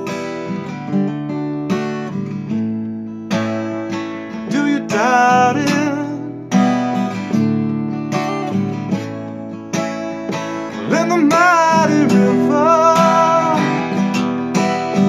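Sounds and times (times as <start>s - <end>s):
acoustic guitar strumming: 0.0s - 15.0s
harmonica melody: 9.9s - 15.0s.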